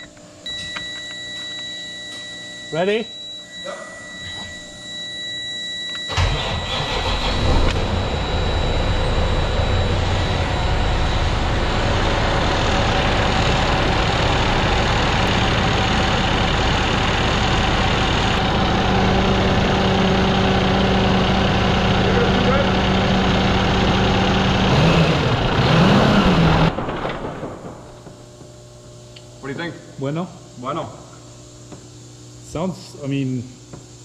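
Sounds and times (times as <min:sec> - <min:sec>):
steady high tone: 0:00.5 - 0:24.5
diesel engine idling: 0:06.1 - 0:26.8
diesel engine cranking: 0:06.1 - 0:28.2.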